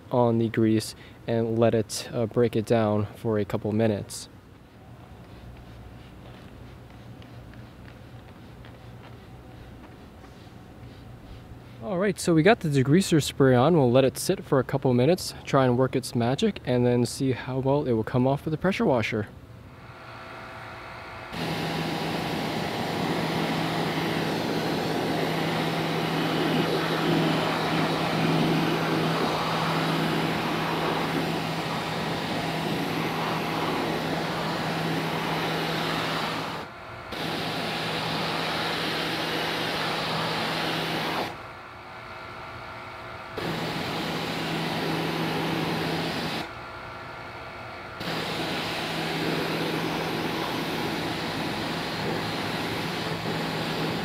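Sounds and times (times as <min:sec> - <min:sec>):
pressure washer motor humming: 0:04.5 - 0:11.8, 0:19.8 - 0:42.0, 0:42.6 - 0:46.8, 0:47.8 - 0:54.0
water jet hissing on metal: 0:21.4 - 0:36.6, 0:48.0 - 0:54.0.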